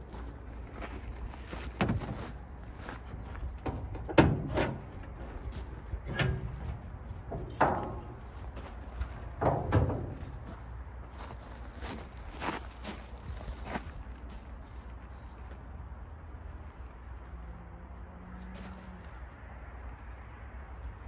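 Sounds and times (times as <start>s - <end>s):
hood hinges creaking: 1.1s - 10.8s
metal knocks and clunks: 1.6s - 2.4s, 3.0s - 10.7s.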